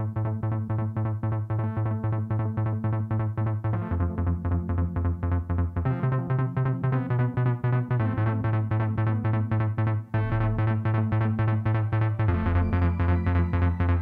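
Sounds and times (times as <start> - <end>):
pulsing synthesizer pattern: 0.0 - 14.0
held bass note: 3.9 - 14.0.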